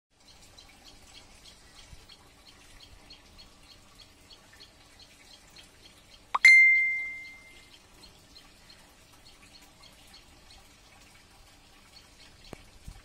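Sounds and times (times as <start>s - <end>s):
short high chirps: 6.4s - 7.6s.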